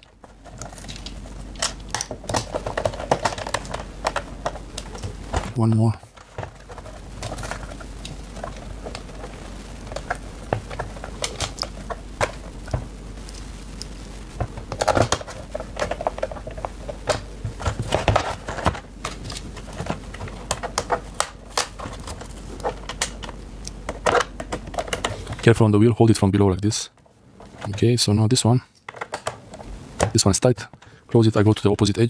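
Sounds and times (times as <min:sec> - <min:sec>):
fingers handling plastic case: 0:00.0 - 0:13.4, 0:14.4 - 0:25.5, 0:28.8 - 0:30.9.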